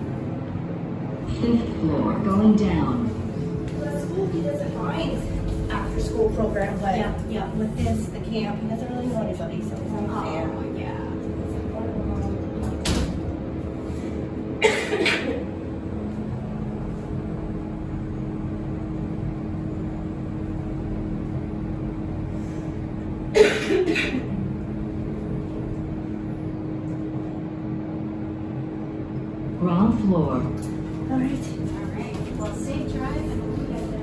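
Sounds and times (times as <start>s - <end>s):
elevator hum: 0.0s - 34.0s.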